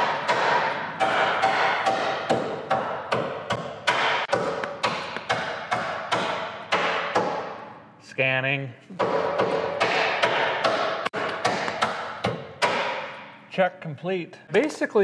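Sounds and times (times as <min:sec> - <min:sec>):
hammer knocking on steel frame: 0:00.0 - 0:07.6, 0:09.0 - 0:13.2.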